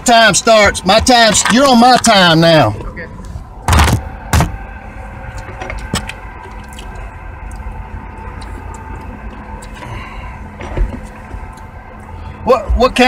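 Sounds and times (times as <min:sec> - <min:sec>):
vehicle engine idling hum: 0:00.0 - 0:13.0.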